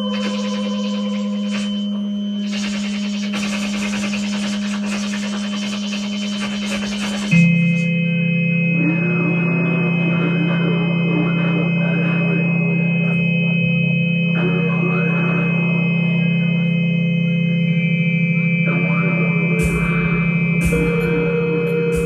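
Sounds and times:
wobbling sliding electronic sounds: 0.0s - 8.1s
droning electronic music: 0.0s - 22.0s
high steady electronic whine: 0.0s - 22.0s.

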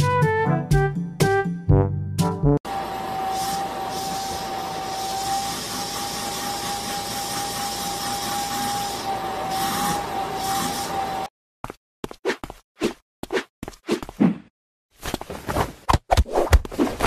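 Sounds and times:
vacuum cleaner running: 2.7s - 11.3s.

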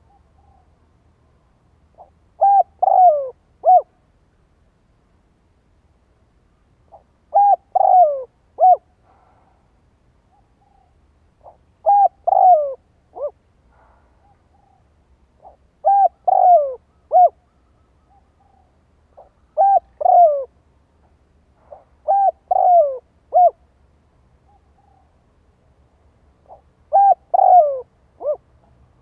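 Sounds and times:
dove cooing: 2.0s - 4.0s, 6.9s - 9.0s, 10.3s - 20.6s, 21.6s - 23.6s, 26.4s - 28.5s.

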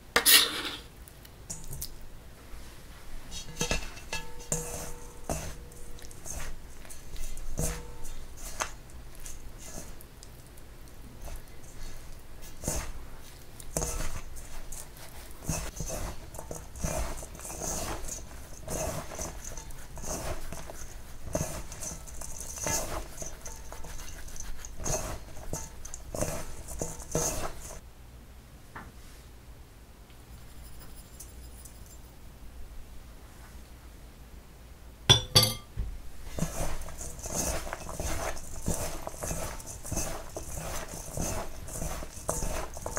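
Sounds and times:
hands rubbing dough in steel bowl: 2.5s - 27.8s, 36.2s - 42.9s.

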